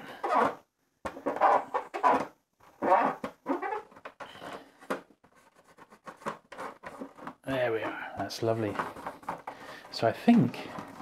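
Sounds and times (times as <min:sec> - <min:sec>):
cloth rubbing on plastic: 0:01.2 - 0:04.0.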